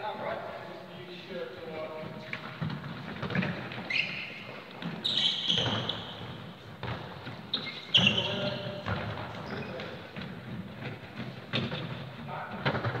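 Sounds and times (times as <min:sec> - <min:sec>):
trainers squeaking on court: 0:02.2 - 0:10.3.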